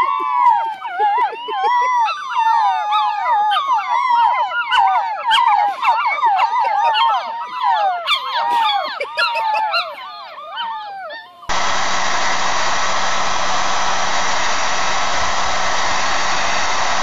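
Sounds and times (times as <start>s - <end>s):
puppies howling: 0.0s - 11.6s.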